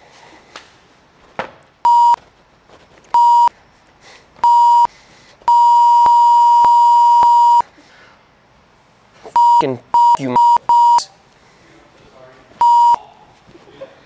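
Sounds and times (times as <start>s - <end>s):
censor beep: 1.9s - 2.2s, 3.2s - 3.5s, 4.4s - 4.9s, 5.5s - 7.6s, 9.4s - 11.1s, 12.6s - 13.0s.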